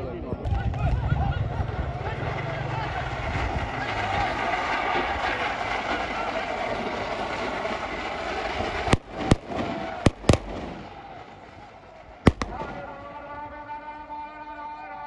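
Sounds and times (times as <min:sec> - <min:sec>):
loud crowd noise: 0:00.0 - 0:15.0
sharp bangs: 0:07.3 - 0:13.4.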